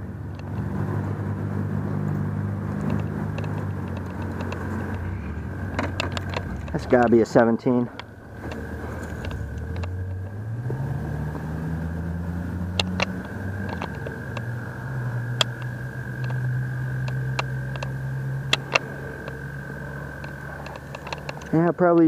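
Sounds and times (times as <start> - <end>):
low engine hum: 0.0 - 22.0
light clicks: 2.0 - 7.3, 7.9 - 10.8, 12.6 - 22.0.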